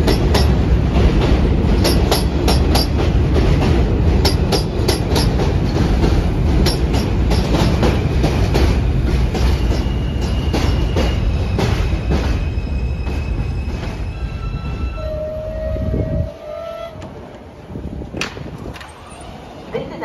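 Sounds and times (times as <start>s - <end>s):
train wheels clicking over rail joints: 0.0s - 14.1s
high brake squeal: 9.4s - 17.0s.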